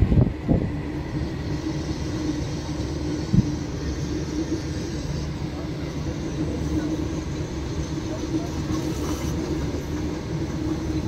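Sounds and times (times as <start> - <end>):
train wagons rumbling on rails: 0.0 - 11.0.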